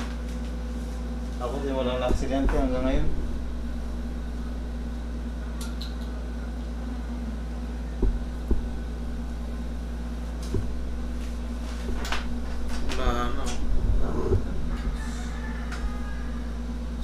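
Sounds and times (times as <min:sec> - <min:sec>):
machinery humming: 0:00.0 - 0:17.0
soft thumps: 0:02.0 - 0:05.0, 0:08.0 - 0:15.2.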